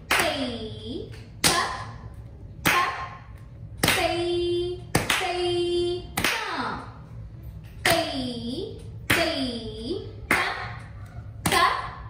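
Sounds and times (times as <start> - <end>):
person chanting rhythm syllables: 2.6 - 6.9, 7.8 - 12.0.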